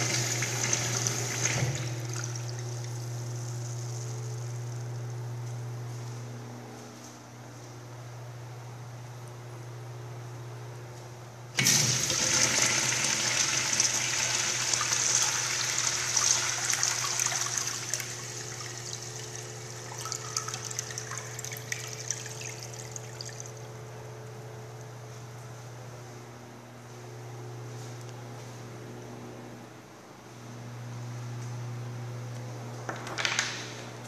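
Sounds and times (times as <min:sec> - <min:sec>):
urinal flushing water rush: 0:00.0 - 0:04.5, 0:11.6 - 0:23.6.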